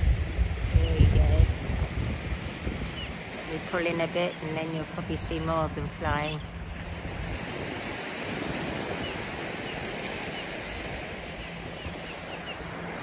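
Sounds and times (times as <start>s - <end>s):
wind buffeting microphone: 0.0s - 13.0s
faint seabird calls: 2.8s - 6.8s, 8.9s - 13.0s.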